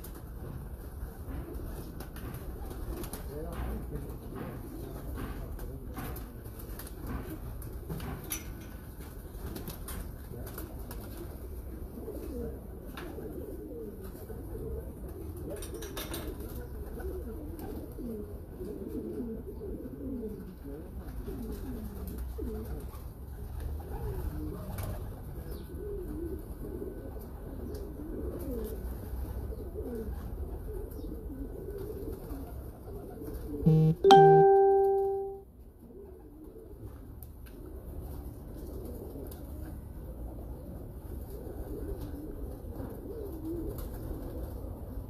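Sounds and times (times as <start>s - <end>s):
pigeons cooing: 9.2s - 33.6s, 37.6s - 45.0s
brief low buzz: 33.7s - 35.4s
loud ringing tone: 33.7s - 35.4s.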